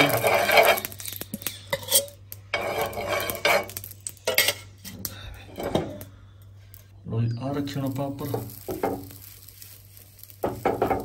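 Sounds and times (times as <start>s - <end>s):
spoon scraping on iron griddle: 0.0s - 6.0s, 8.1s - 11.0s.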